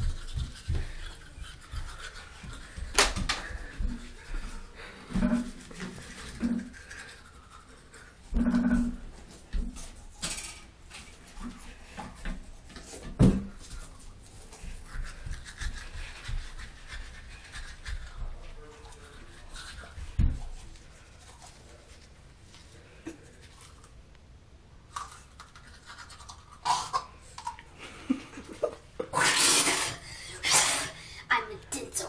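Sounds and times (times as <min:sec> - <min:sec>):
toothbrush scrubbing teeth: 0:00.0 - 0:10.0, 0:13.6 - 0:22.2, 0:24.9 - 0:27.7, 0:28.4 - 0:32.0
knocks and thump: 0:13.1 - 0:13.5.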